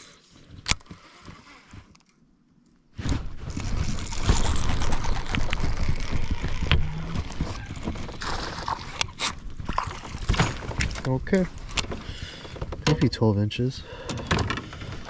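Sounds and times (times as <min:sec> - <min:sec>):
fishing reel cranking: 0:03.5 - 0:09.1
fish splashing: 0:03.9 - 0:10.4.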